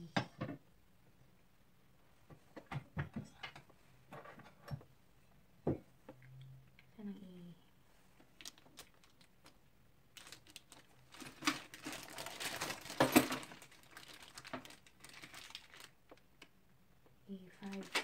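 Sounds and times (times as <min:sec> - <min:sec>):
plastic bag crinkling: 0:08.3 - 0:16.5, 0:17.6 - 0:18.0
small metal parts rattling: 0:10.2 - 0:15.9.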